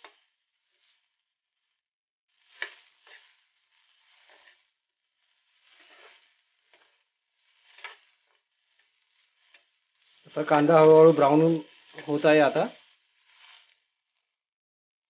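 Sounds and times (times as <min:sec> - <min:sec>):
faint sizzling: 0:00.0 - 0:14.4
spatula scraping pan: 0:02.4 - 0:13.8.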